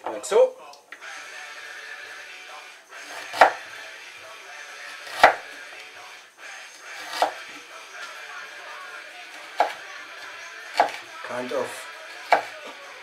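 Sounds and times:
knife chopping on wooden board: 3.1s - 3.6s, 5.1s - 5.5s, 7.0s - 7.4s, 9.6s - 9.8s, 10.7s - 11.0s, 12.2s - 12.6s.

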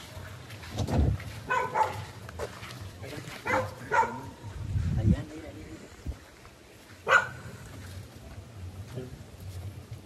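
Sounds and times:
dog barking: 1.5s - 2.2s, 3.4s - 4.4s, 7.0s - 7.5s.

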